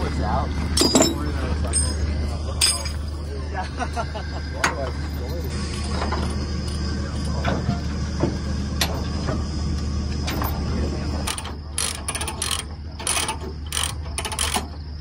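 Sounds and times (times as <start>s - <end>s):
low steady hum: 0.0s - 15.0s
metal clinks: 0.8s - 3.2s
ratchet clicks: 11.2s - 15.0s.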